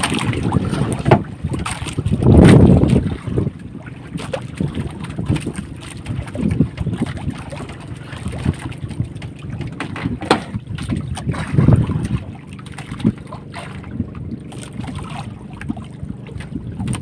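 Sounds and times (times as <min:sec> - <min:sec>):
water slapping boat hull: 0:00.0 - 0:17.0
wind buffeting microphone: 0:00.0 - 0:17.0.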